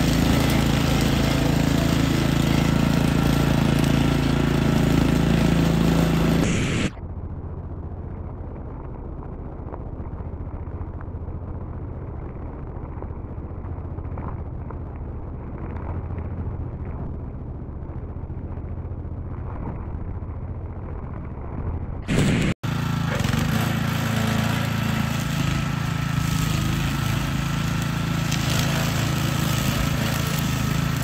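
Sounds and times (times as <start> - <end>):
brush cutter engine running: 0.0 - 7.0, 22.1 - 31.0.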